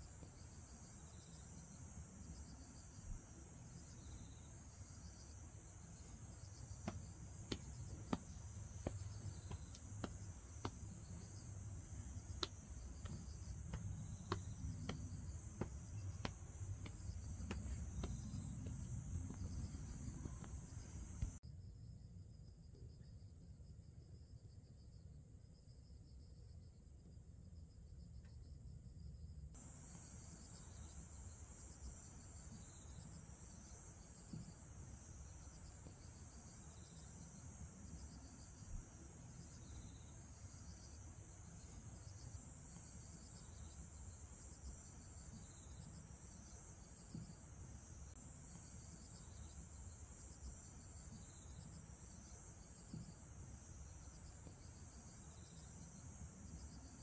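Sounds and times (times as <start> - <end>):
insects chirring: 0.0 - 21.4, 29.6 - 57.0
pulsing insect trill: 0.0 - 21.4, 29.6 - 57.0
small knocks: 6.0 - 21.4.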